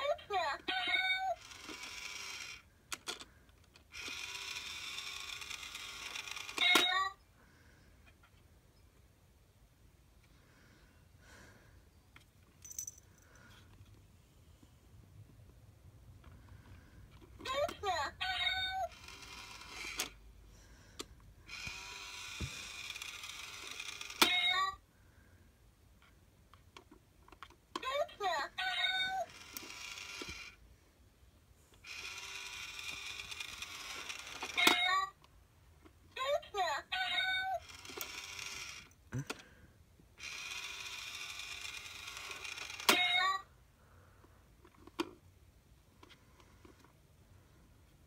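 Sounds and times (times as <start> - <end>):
toy motor whirring: 0.0 - 7.2, 17.1 - 20.2, 21.0 - 24.8, 26.8 - 30.6, 31.7 - 35.2, 36.5 - 39.4, 40.2 - 43.5.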